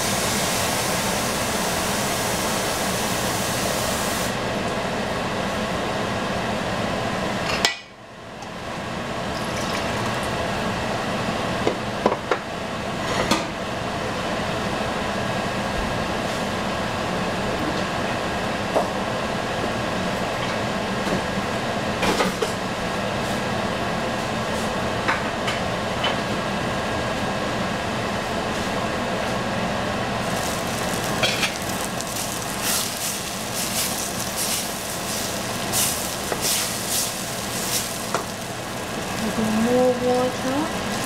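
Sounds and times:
rice sizzling in a pot: 0:00.0 - 0:04.5, 0:30.0 - 0:41.0
gas burner hissing: 0:00.0 - 0:06.7, 0:28.2 - 0:41.0.

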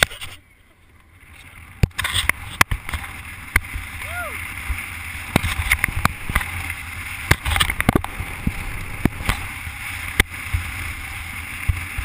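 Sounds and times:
wind buffeting microphone: 0:01.8 - 0:10.7.

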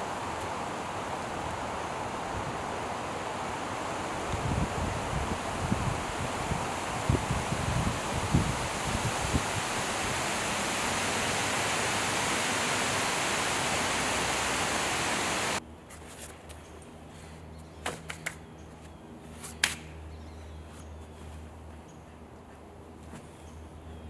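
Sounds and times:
wind rushing through trees: 0:00.0 - 0:15.6.

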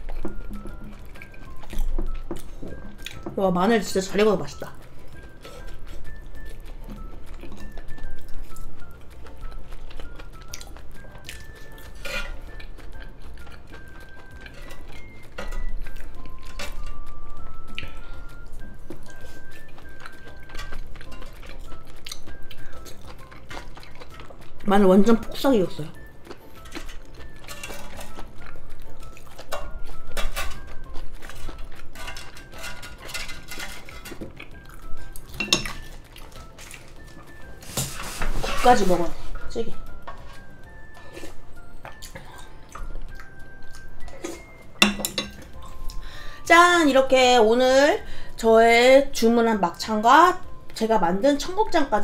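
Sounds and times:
faint background music: 0:00.0 - 0:52.0
chopsticks scraping on grill plate: 0:11.9 - 0:12.5, 0:31.3 - 0:34.3, 0:37.6 - 0:39.0
chopsticks clattering: 0:26.6 - 0:28.3, 0:29.4 - 0:37.1, 0:44.1 - 0:45.8
chopsticks tapping on grill plate: 0:35.3 - 0:35.8, 0:44.8 - 0:45.5.

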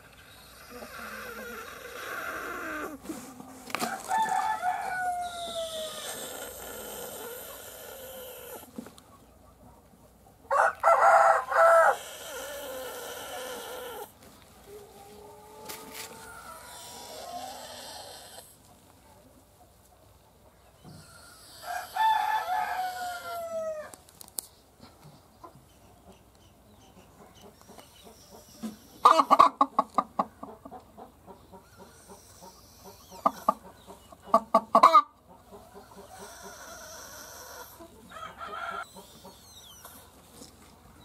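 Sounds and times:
chicken drawn-out call: 0:03.8 - 0:08.8, 0:10.5 - 0:18.6, 0:20.9 - 0:24.0, 0:31.6 - 0:40.2
chickens clucking rapidly: 0:25.4 - 0:40.2.

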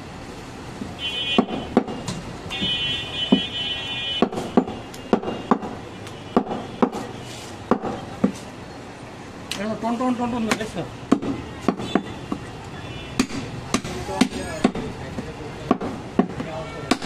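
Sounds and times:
knife hacking on wooden block: 0:04.2 - 0:05.8, 0:06.4 - 0:07.1, 0:15.7 - 0:17.0.

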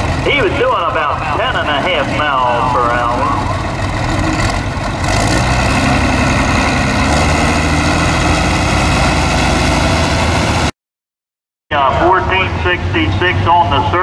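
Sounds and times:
tractor engine running: 0:00.0 - 0:10.7.

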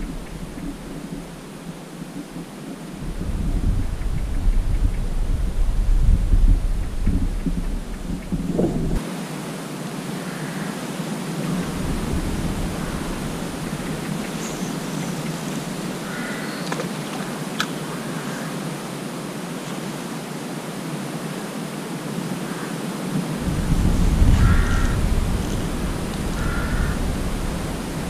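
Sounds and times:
faint distant calls: 0:00.0 - 0:05.6, 0:10.1 - 0:18.8, 0:23.6 - 0:28.0
wind buffeting microphone: 0:00.0 - 0:09.0, 0:11.2 - 0:17.6, 0:23.1 - 0:28.0.

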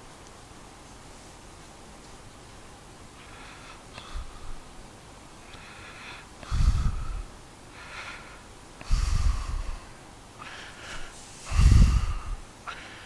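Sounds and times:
man breathing heavily: 0:03.1 - 0:04.7, 0:05.4 - 0:13.0
breath rumbling on microphone: 0:03.2 - 0:04.6, 0:05.5 - 0:13.0.

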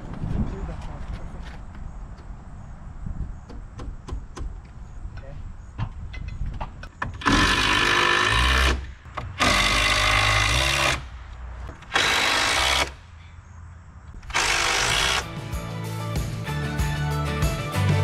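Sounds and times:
cordless drill bursts: 0:07.2 - 0:11.0, 0:11.9 - 0:13.0, 0:14.3 - 0:15.3.

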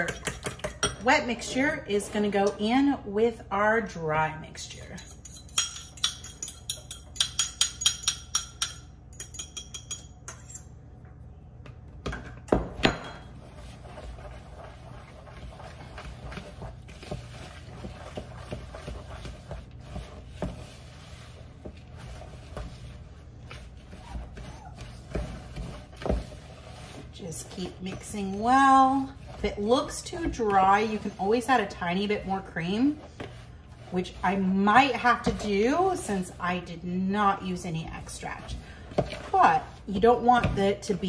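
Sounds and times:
fork clinking against bowl: 0:05.0 - 0:10.7
fork knocking on bowl: 0:05.5 - 0:10.4.

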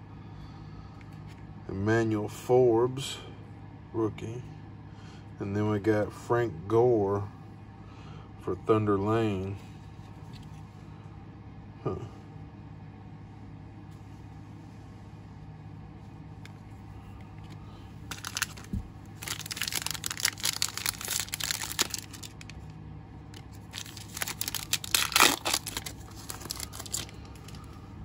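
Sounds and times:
foil wrapper crinkling and tearing: 0:17.4 - 0:22.7, 0:23.3 - 0:27.8.

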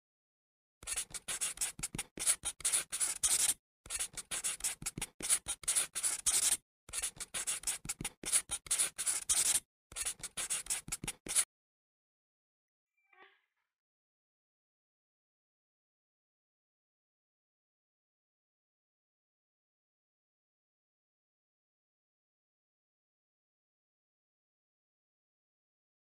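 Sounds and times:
pen scratching on paper: 0:00.8 - 0:11.5.

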